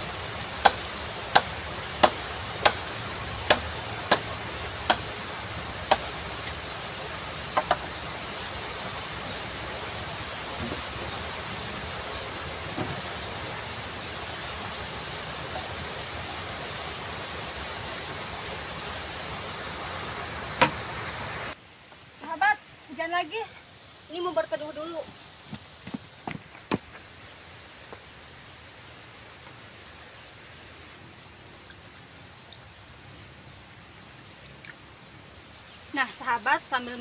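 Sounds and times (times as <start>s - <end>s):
high-pitched insect drone: 0.0s - 21.6s
machete chopping bamboo: 0.6s - 5.1s, 5.8s - 6.2s, 7.5s - 8.0s, 20.6s - 20.9s.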